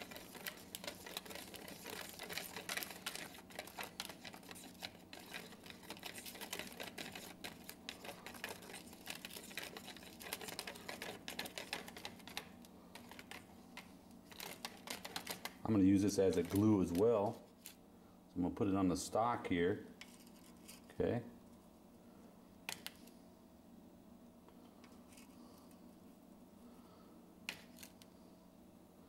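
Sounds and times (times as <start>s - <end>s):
screwdriver scraping plastic tub: 0.0s - 13.4s, 14.3s - 17.0s.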